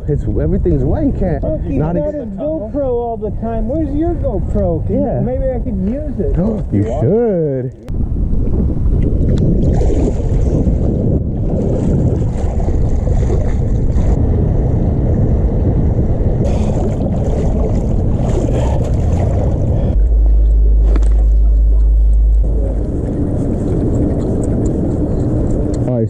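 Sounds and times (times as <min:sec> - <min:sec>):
wind buffeting microphone: 0:00.0 - 0:26.0
water lapping and splashing: 0:09.0 - 0:14.2, 0:16.4 - 0:25.8.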